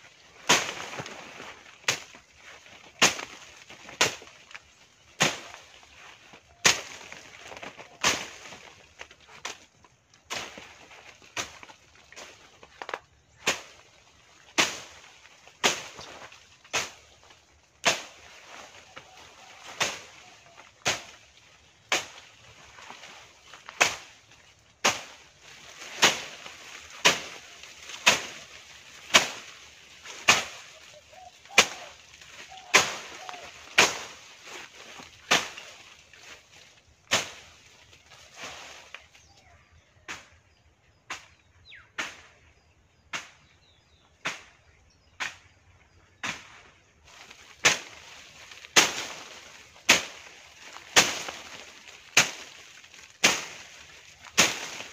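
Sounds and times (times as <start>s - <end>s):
leaves rustling: 0.0s - 40.5s, 41.2s - 54.9s
blade slashing through bushes: 0.3s - 39.0s, 46.2s - 54.9s.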